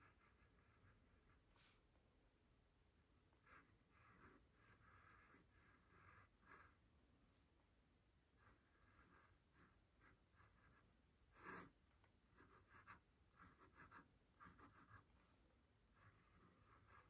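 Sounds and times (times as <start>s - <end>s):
pen nib scratching on paper: 0.0s - 1.4s, 3.4s - 6.8s, 8.4s - 15.4s, 16.0s - 17.0s.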